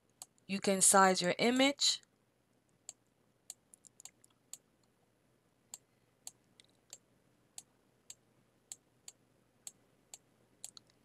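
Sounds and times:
computer mouse buttons clicking: 2.9s - 4.6s, 10.1s - 11.0s.

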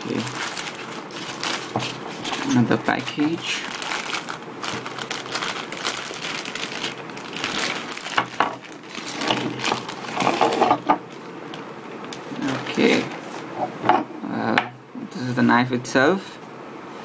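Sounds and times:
plastic and paper rustling: 0.0s - 11.6s.

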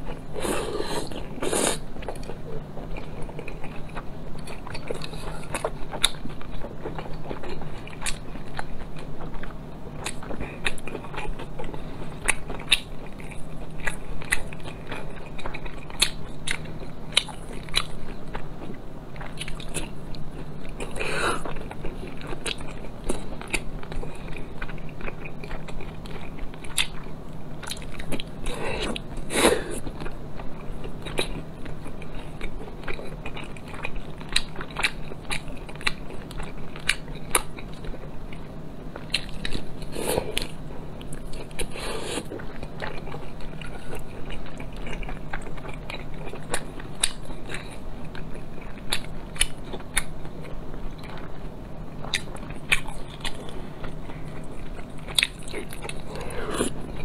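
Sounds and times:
person chewing food: 0.0s - 57.0s.

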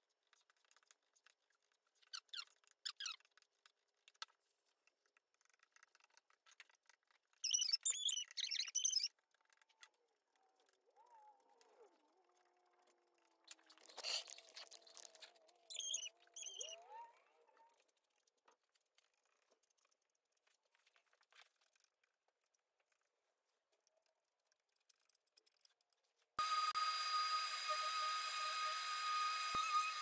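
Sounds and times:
putty knife squeaking and scraping: 1.9s - 3.6s, 7.3s - 9.2s, 13.4s - 17.7s
orbit sander whining: 26.4s - 30.0s.

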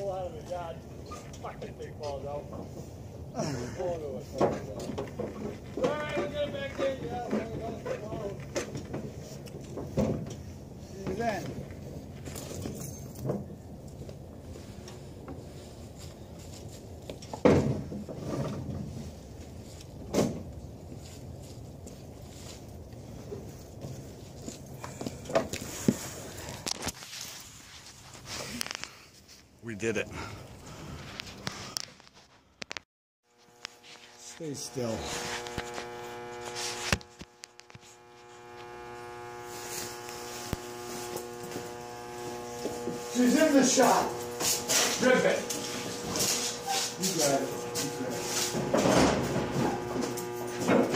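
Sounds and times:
plank rattling and scraping: 4.4s - 10.5s
electrical buzz: 33.2s - 50.9s.

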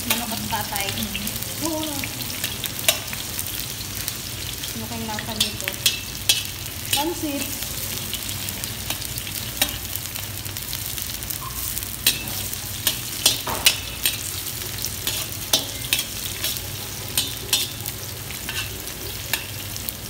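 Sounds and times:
onion sizzling in hot oil: 0.0s - 20.0s
metal skimmer scraping wok: 12.0s - 19.7s.

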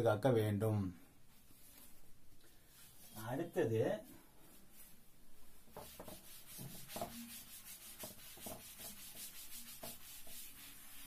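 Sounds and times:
chalkboard being wiped by hand: 5.7s - 11.0s.

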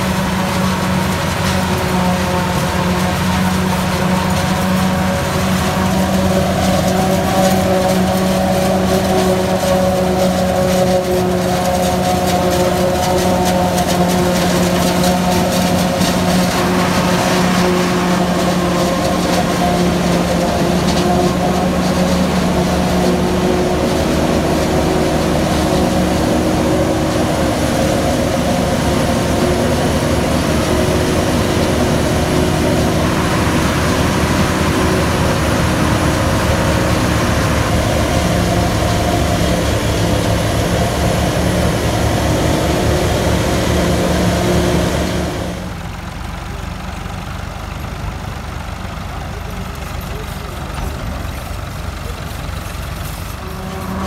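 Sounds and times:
forage harvester running: 0.0s - 54.0s.

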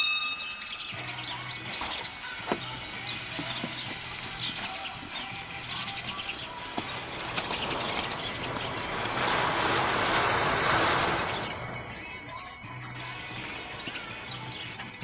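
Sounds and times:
birds chirping: 0.0s - 15.0s
even rushing noise: 7.0s - 12.3s.

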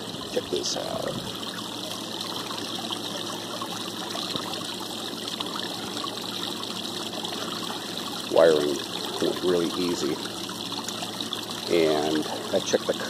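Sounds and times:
water splashing into pond: 0.0s - 13.0s.

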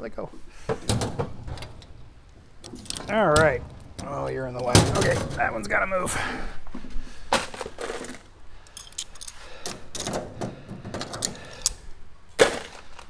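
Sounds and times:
metallic ticks and rattles: 0.8s - 5.7s, 8.6s - 11.8s
tools clicking on metal: 2.6s - 4.1s, 8.6s - 10.3s, 11.0s - 11.9s.

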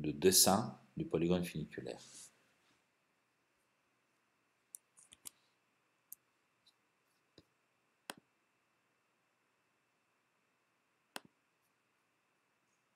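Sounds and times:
computer mouse clicks: 4.7s - 5.4s, 11.1s - 11.4s.

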